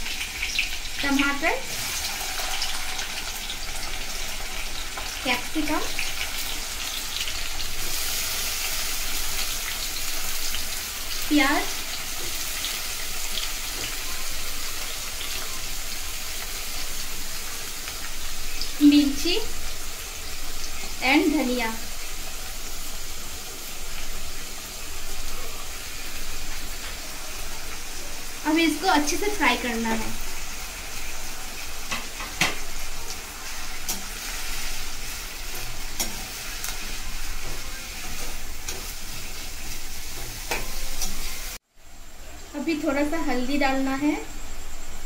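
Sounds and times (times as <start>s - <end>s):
vegetables sizzling in hot oil: 0.0s - 45.0s
spoon knocking and scraping pan: 31.8s - 32.8s, 33.8s - 41.4s.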